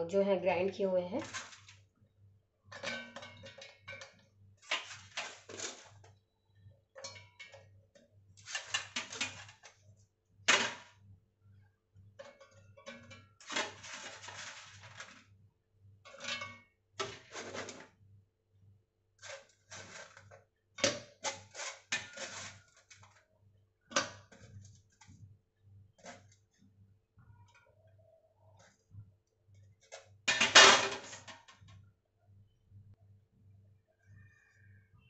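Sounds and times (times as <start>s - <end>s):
coconut pieces clattering in steel jar: 1.2s - 1.8s, 2.7s - 5.9s, 12.2s - 15.2s, 19.2s - 23.2s.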